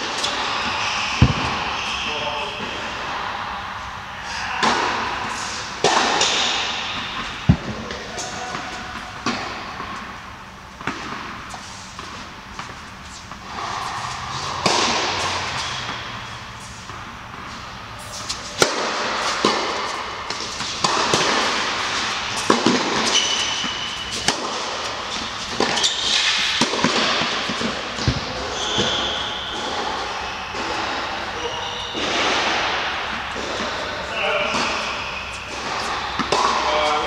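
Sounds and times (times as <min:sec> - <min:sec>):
tennis ball struck by rackets: 0:00.0 - 0:01.7, 0:04.5 - 0:10.2, 0:10.8 - 0:29.0, 0:32.0 - 0:37.0
ball bouncing on hard court: 0:00.0 - 0:02.0, 0:05.8 - 0:10.2, 0:10.8 - 0:31.0, 0:31.9 - 0:37.0
shoe squeaks on court: 0:23.0 - 0:24.3, 0:25.0 - 0:26.6, 0:28.4 - 0:30.8.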